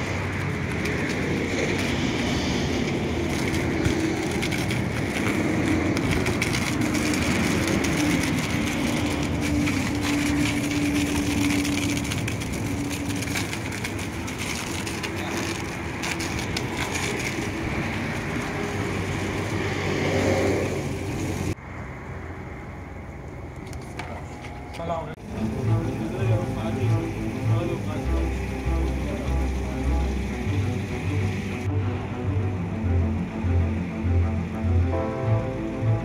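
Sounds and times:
pressure washer spraying: 0.0 - 21.5
low hum: 25.2 - 36.0.

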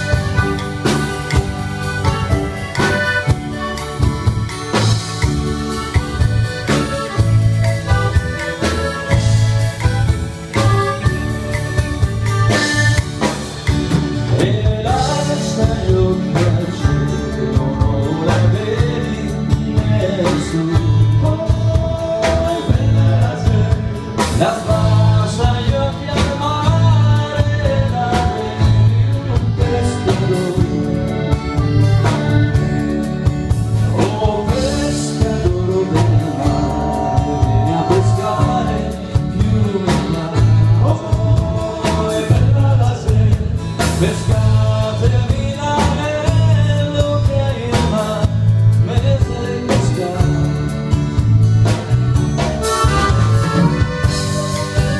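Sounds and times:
accordion: 0.0 - 54.9
acoustic guitar: 0.0 - 54.9
drum kit beat: 0.0 - 54.9
man singing: 13.9 - 51.3.

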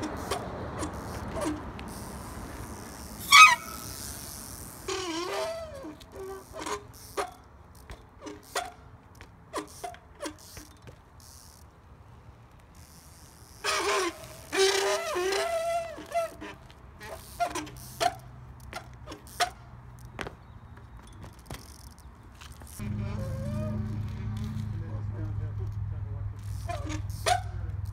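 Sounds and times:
bike ticking and creaking: 0.0 - 27.9
loud wavering brake squeal: 3.2 - 4.2, 22.8 - 24.4.

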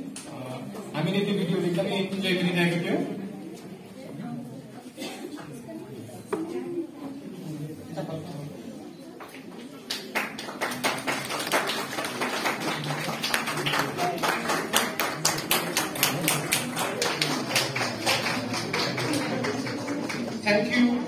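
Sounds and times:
audience applauding: 9.9 - 20.4.

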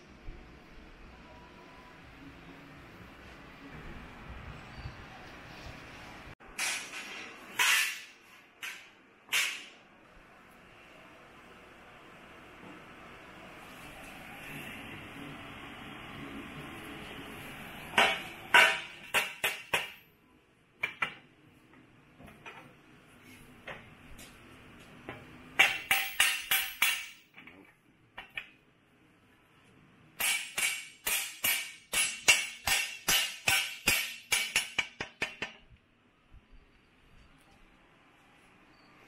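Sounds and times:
mallet striking steel plates: 25.6 - 27.3, 30.2 - 35.5.

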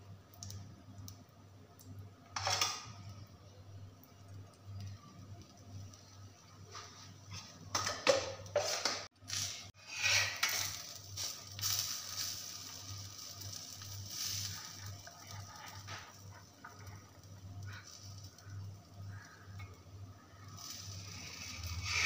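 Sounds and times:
ghee sizzling: 0.0 - 22.0
spatula scraping on griddle: 8.5 - 16.9, 20.6 - 22.0.

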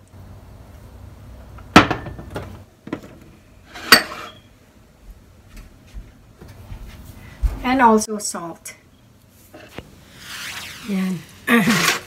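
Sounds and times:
bottles knocking on glass stove: 1.8 - 3.1.

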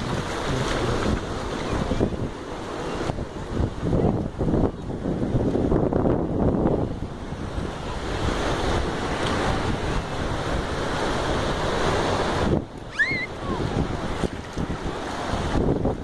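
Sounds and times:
small waves washing in: 0.0 - 16.0
wind buffeting microphone: 0.0 - 16.0
short high squeak: 12.9 - 13.3.

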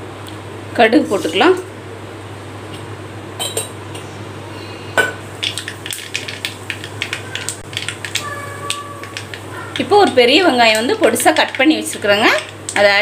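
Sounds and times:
mustard seeds popping in oil: 5.4 - 13.0.

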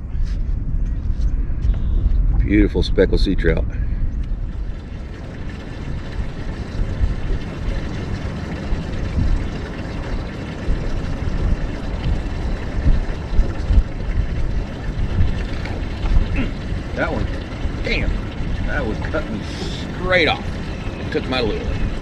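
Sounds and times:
wind buffeting microphone: 0.0 - 22.0
water washing against hull: 4.3 - 22.0.

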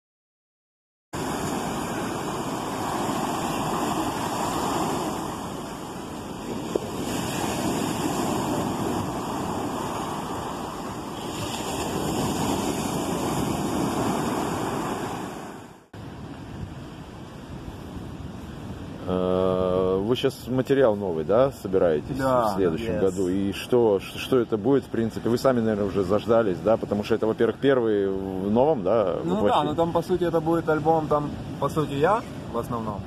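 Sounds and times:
surf breaking on beach: 1.2 - 18.1.

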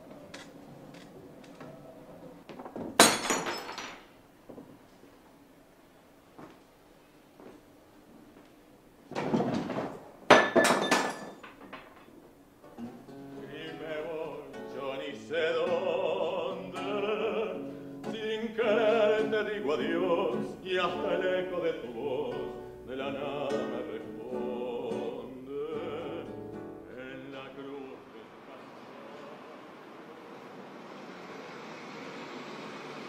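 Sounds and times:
acoustic guitar: 12.4 - 29.6
man singing: 13.4 - 29.6.

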